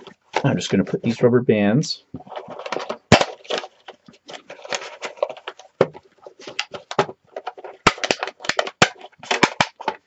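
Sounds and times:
cardboard clicks taps and rustles: 2.2 - 10.0.

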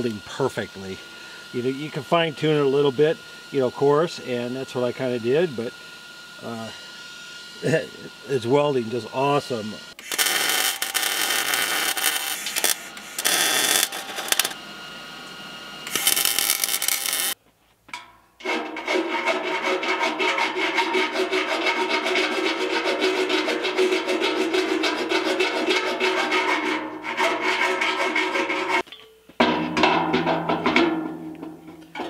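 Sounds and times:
hand grinder grinding steel: 0.0 - 14.6, 15.8 - 17.4, 18.4 - 28.9
welding arc crackling: 9.9 - 14.6, 15.8 - 17.4.

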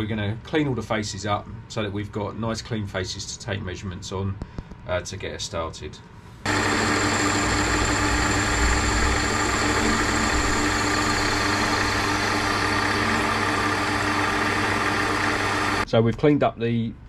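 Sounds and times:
lathe tool cutting aluminium: 6.5 - 15.8
metal lathe humming and whining: 6.5 - 15.8.

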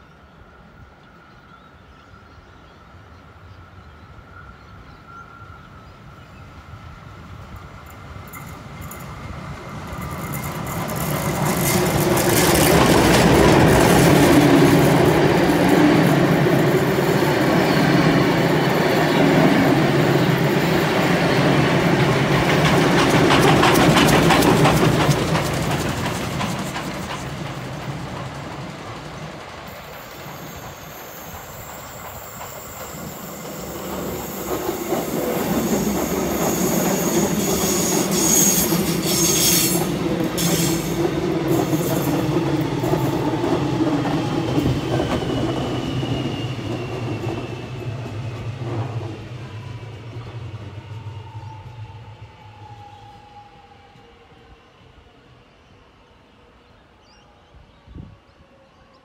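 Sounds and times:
electric train passing: 0.0 - 59.0
train wheels clickety-clack: 7.6 - 51.3.

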